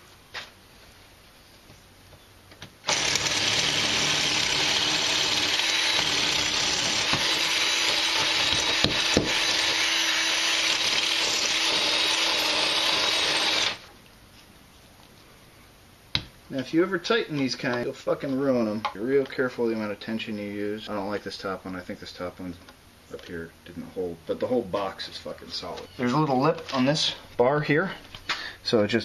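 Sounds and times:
cordless drill boring into concrete: 2.8s - 13.9s.

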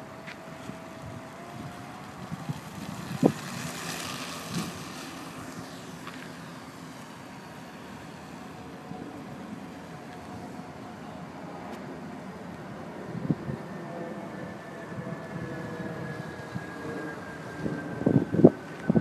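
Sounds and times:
wind on microphone: 0.0s - 5.6s, 12.8s - 19.0s
electric motor and propeller whining: 0.0s - 19.0s.

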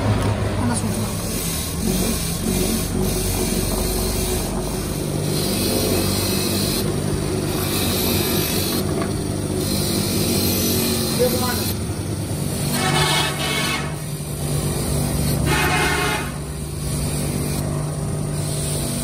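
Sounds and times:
wire brush wheel motor running: 0.6s - 19.0s
wire brush scratching metal: 12.5s - 17.7s.

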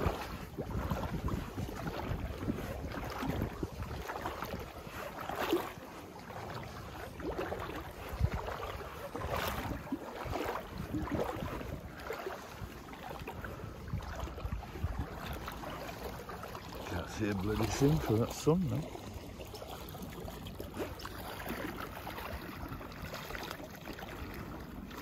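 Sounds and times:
wind buffeting microphone: 0.0s - 18.9s
floodwater sloshing: 0.0s - 25.0s.

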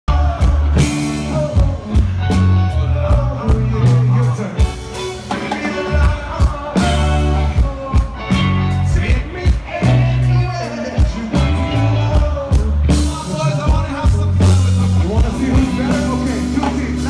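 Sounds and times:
electric guitar: 0.1s - 17.0s
heavy bass notes: 0.1s - 17.0s
person singing: 0.1s - 17.0s.

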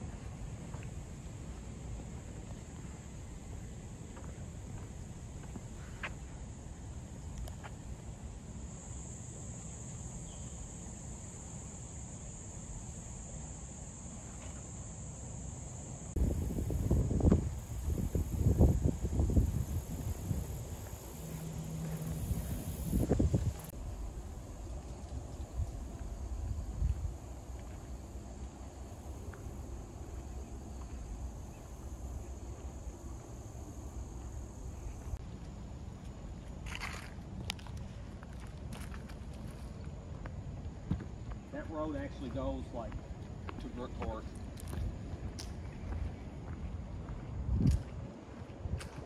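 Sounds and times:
high-pitched insect chorus: 0.0s - 46.3s
high-pitched hiss: 1.2s - 35.2s
wind rumble on microphone: 16.2s - 27.8s, 42.9s - 49.0s.

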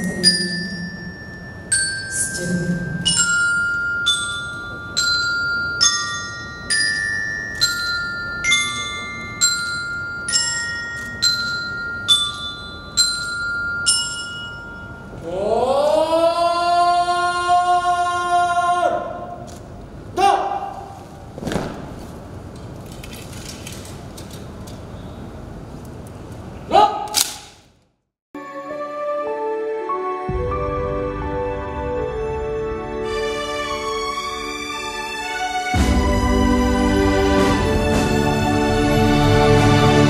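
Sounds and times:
mallet percussion melody: 0.0s - 15.2s.

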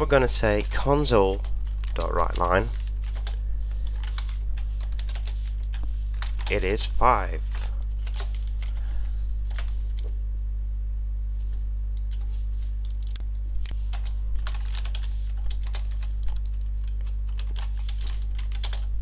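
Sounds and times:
low electrical hum: 0.0s - 19.0s
keyboard typing: 0.4s - 6.9s, 7.5s - 8.8s, 12.0s - 18.9s.

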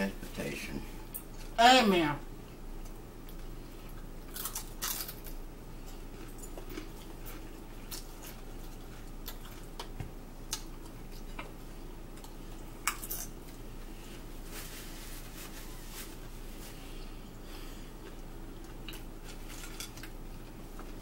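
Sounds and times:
chips crunching while chewed: 3.3s - 9.9s.

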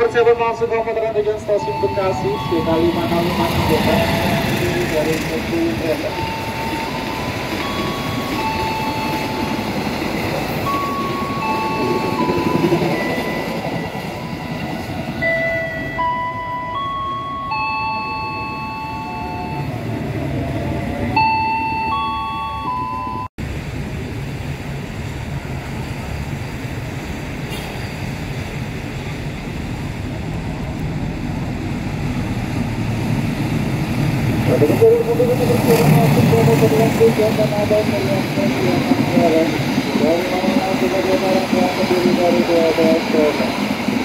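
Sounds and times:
electric train rumbling: 0.0s - 44.0s
held tones stepping in pitch: 1.4s - 14.6s.

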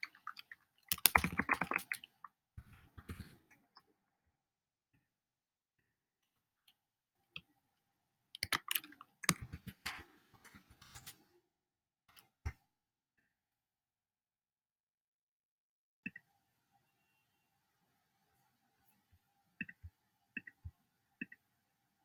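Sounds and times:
keyboard typing: 0.0s - 2.1s, 8.4s - 10.0s.

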